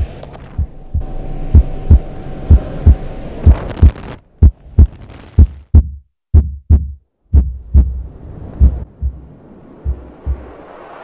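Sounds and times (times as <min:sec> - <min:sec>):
heartbeat thumps: 0:00.0 - 0:10.6
steady background rush: 0:07.8 - 0:11.0.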